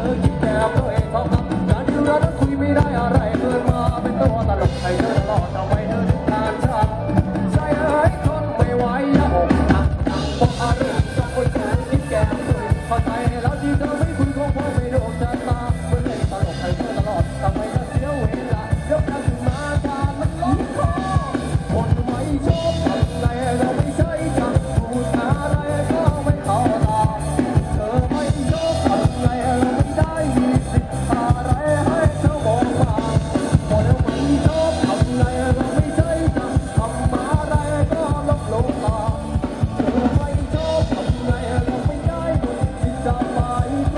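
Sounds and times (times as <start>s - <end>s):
drum kit beat: 0.0s - 43.9s
live band music: 0.0s - 43.9s
person singing: 0.0s - 43.9s.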